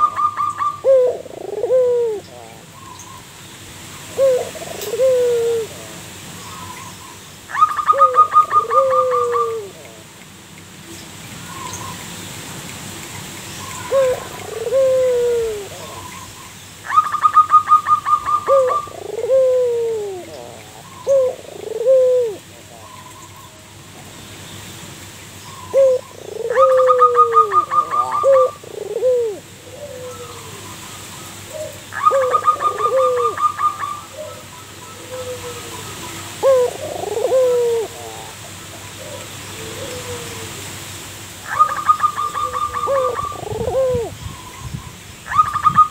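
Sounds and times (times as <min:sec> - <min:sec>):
dove cooing: 0:00.0 - 0:02.7, 0:04.1 - 0:06.0, 0:07.5 - 0:10.1, 0:13.7 - 0:23.2, 0:25.6 - 0:30.7, 0:31.5 - 0:40.6, 0:41.5 - 0:44.2.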